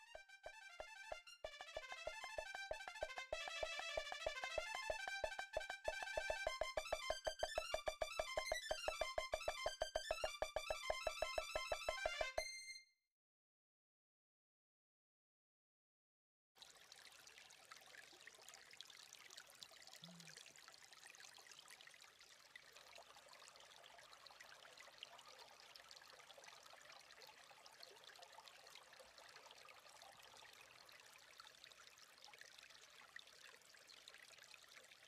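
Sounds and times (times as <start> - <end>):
creek water trickling over rocks: 16.6 - 35.0.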